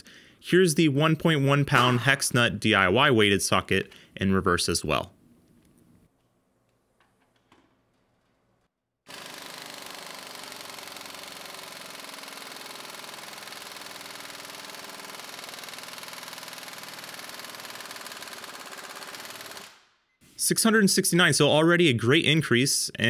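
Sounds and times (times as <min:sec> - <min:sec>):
pneumatic impact wrench hammering: 0:09.1 - 0:19.8.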